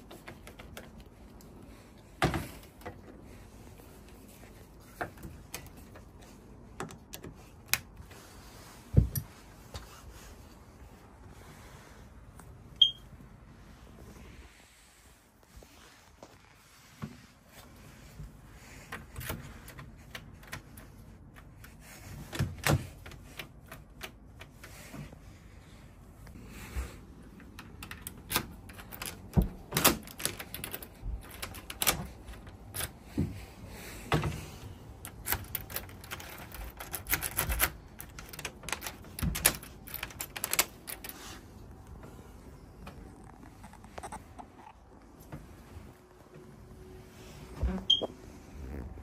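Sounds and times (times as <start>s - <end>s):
key in door lock: 27.7s - 32.1s, 35.0s - 41.1s.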